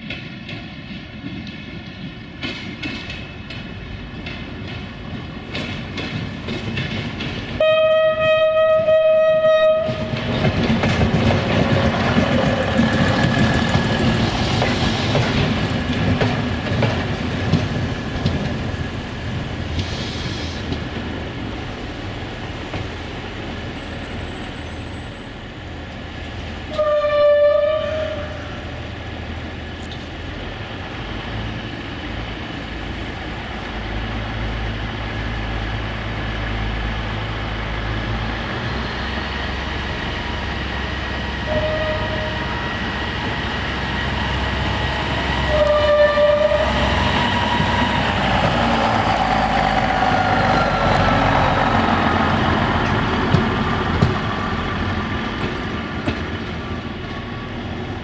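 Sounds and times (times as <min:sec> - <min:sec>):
wheels clicking over rail joints: 0:00.0 - 0:20.0, 0:51.9 - 0:58.0
train engine and wheel noise: 0:00.0 - 0:58.0
train horn blast: 0:07.6 - 0:10.2, 0:26.7 - 0:28.6, 0:41.4 - 0:42.7, 0:45.4 - 0:47.0.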